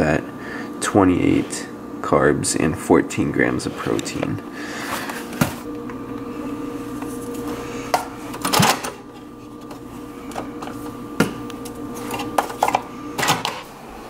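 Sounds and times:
low hum: 3.6s - 14.0s.

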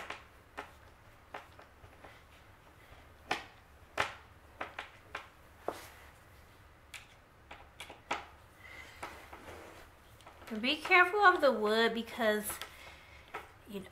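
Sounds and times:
screwdriver clicks and taps: 6.9s - 8.3s.

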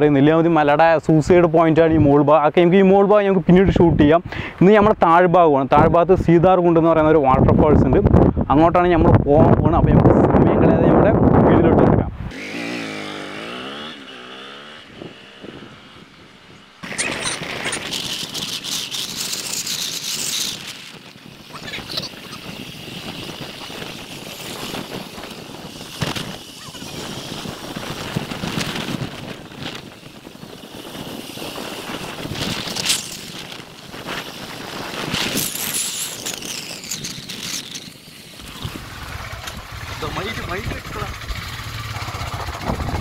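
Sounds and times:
wind buffeting microphone: 5.7s - 12.4s, 13.2s - 43.0s
vehicle road noise: 12.1s - 43.0s.

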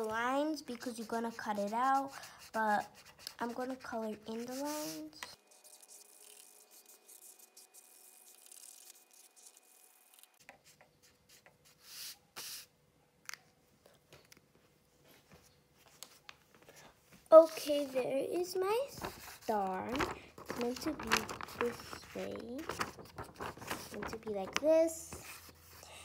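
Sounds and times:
marker scratching on paper: 0.0s - 9.8s, 10.4s - 12.7s, 18.9s - 19.9s, 23.7s - 25.8s
paper being handled: 2.8s - 9.6s, 17.4s - 25.8s.

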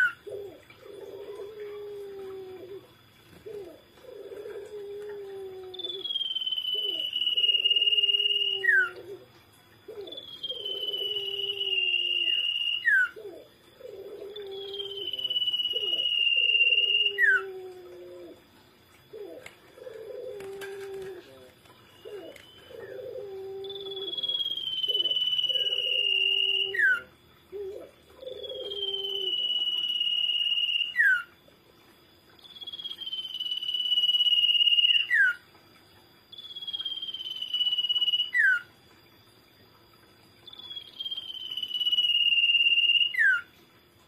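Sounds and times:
bird singing long whistles: 5.6s - 9.0s, 9.9s - 13.2s, 14.3s - 17.6s, 21.9s - 27.1s, 28.2s - 31.3s, 32.4s - 35.4s, 36.3s - 38.7s, 40.4s - 43.5s
lower bird call: 9.9s - 18.4s, 19.2s - 31.3s.

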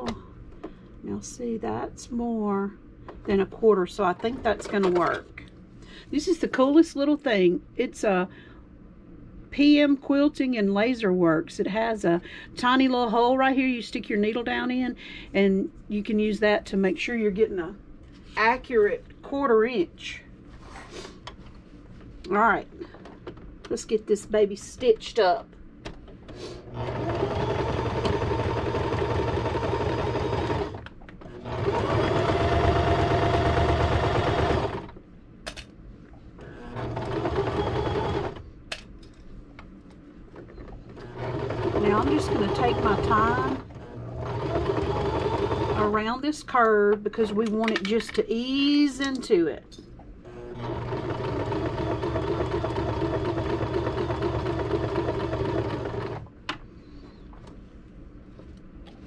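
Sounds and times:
electric sewing machine stitching: 26.7s - 35.0s, 36.4s - 38.4s, 41.0s - 46.0s, 50.3s - 56.3s.

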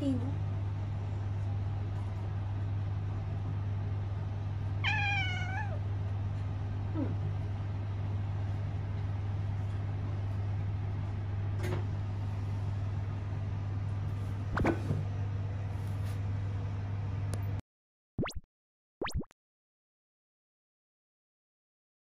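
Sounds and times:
steady low hum: 0.0s - 17.6s
cat meowing: 4.8s - 5.8s.

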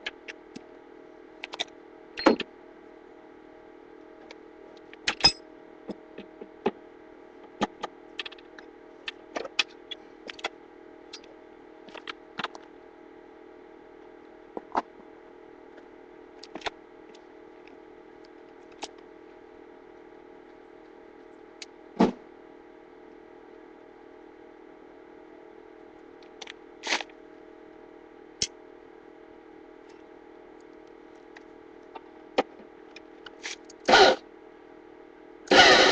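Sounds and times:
steady low hum: 0.0s - 35.9s.

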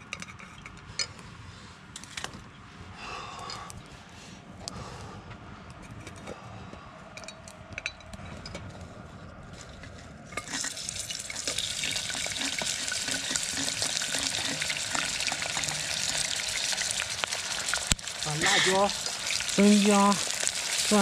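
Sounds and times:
hot oil sizzling: 10.4s - 21.0s.

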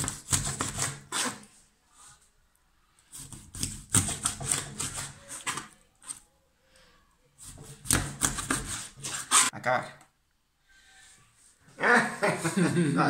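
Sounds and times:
knife cutting through fish bone: 3.1s - 6.2s.

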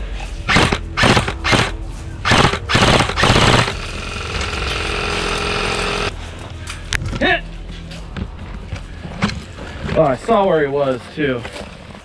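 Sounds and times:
airsoft rifle full-auto bursts: 0.5s - 6.1s.

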